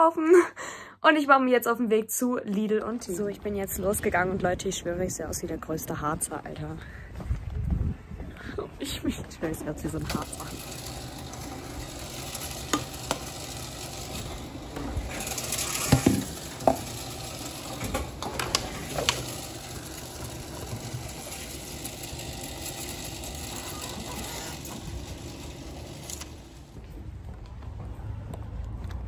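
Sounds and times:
vending machine humming: 9.2s - 27.0s
containers knocking and clunking: 15.7s - 16.9s.

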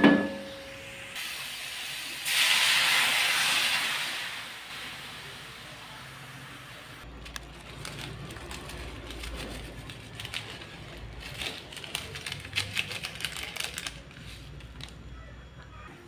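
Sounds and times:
broth simmering in a wok: 0.5s - 8.2s
seasoning granules ticking: 7.2s - 15.0s.

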